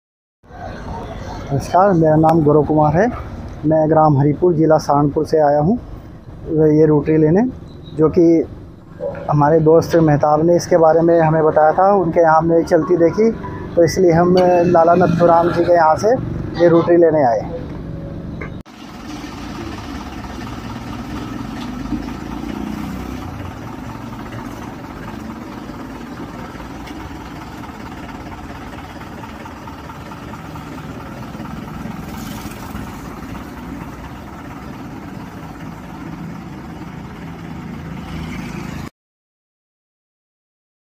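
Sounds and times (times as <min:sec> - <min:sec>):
tractor diesel engine idling: 0:09.4 - 0:16.8, 0:18.7 - 0:38.1.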